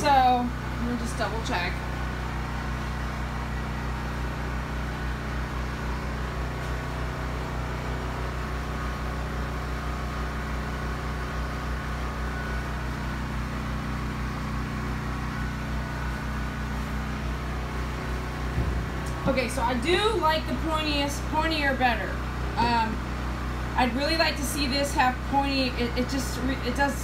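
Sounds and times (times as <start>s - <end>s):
generator humming: 0.0s - 27.0s.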